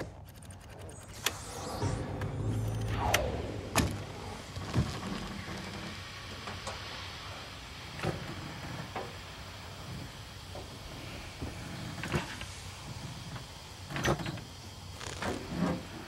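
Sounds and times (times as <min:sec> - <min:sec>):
low hum: 0:00.0 - 0:07.8
steady hiss: 0:01.1 - 0:16.0.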